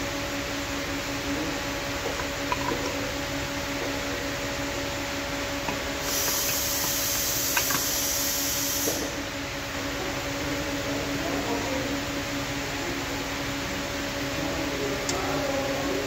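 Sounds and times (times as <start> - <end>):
steady hum: 0.0 - 16.0
high hiss: 6.0 - 9.2.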